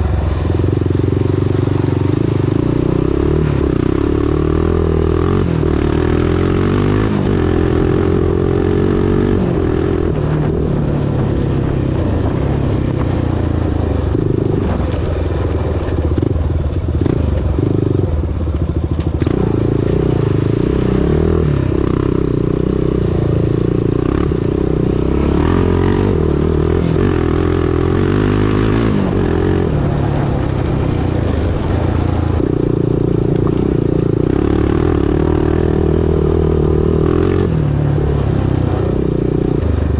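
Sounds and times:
atv engine running: 0.0s - 39.9s
vehicle clattering over rough ground: 10.2s - 19.8s.

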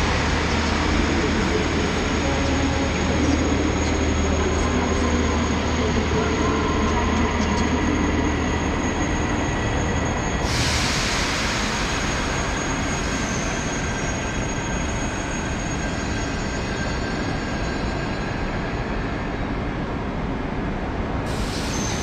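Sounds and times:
train rolling with low rumble: 0.0s - 22.0s
loud high hissing: 10.4s - 14.2s.

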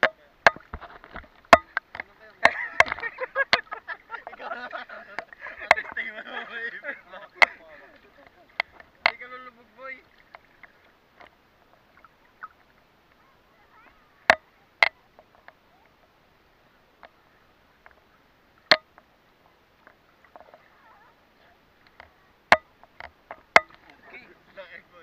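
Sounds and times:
sharp water slaps: 0.0s - 11.3s, 21.9s - 24.2s
water lapping and splashing: 0.0s - 25.0s
faint watery hiss: 0.2s - 25.0s.

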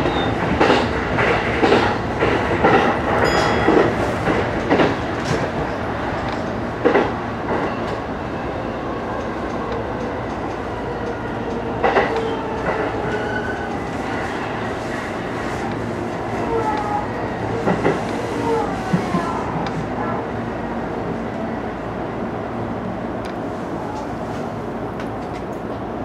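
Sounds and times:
train wheels clacking on rail joints: 0.0s - 8.0s, 9.2s - 13.8s
train running rumble: 0.0s - 8.2s, 8.8s - 21.4s.

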